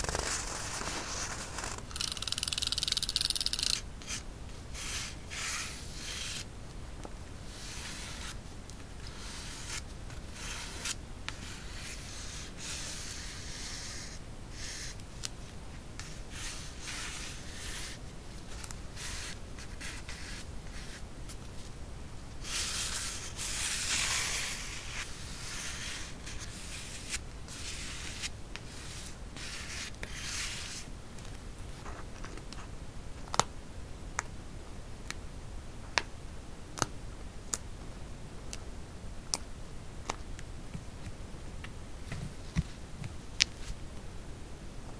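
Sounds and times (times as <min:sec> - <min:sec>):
paper sheets rubbing and sliding: 0:00.0 - 0:02.3, 0:22.4 - 0:30.9.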